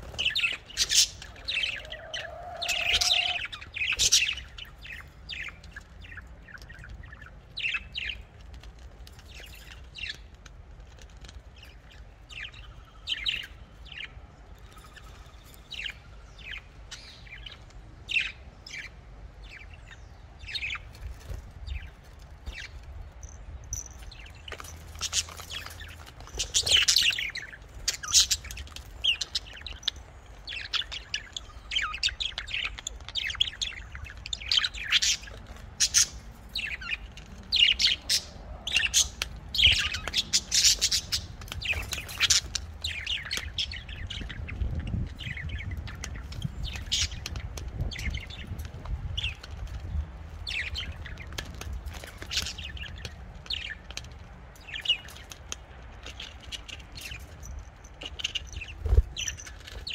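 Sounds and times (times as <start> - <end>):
budgerigars chirping: 0.0 - 8.2, 23.8 - 48.6.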